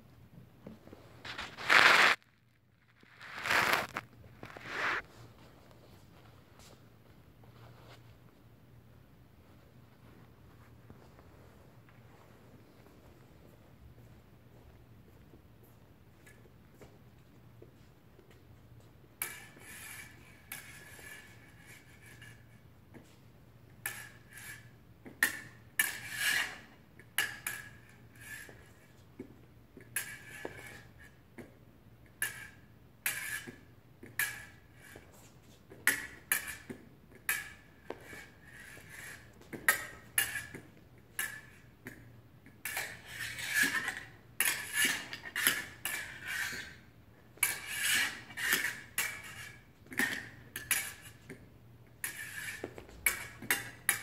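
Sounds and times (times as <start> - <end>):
fencing blades clinking and scraping: 2.8 - 5.0, 35.8 - 46.9.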